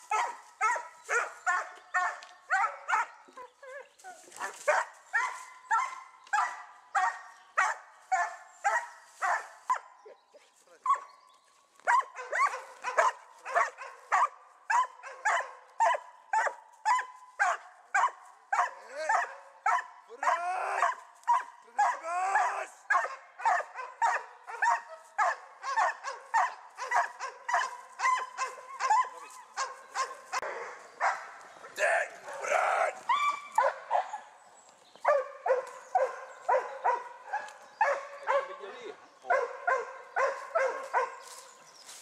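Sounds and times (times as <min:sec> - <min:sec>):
dog barking: 0:00.0 - 0:10.1, 0:10.8 - 0:11.2, 0:11.8 - 0:34.4, 0:35.0 - 0:41.5
dog whining yelps: 0:00.1 - 0:09.8, 0:11.8 - 0:30.7, 0:32.3 - 0:34.2.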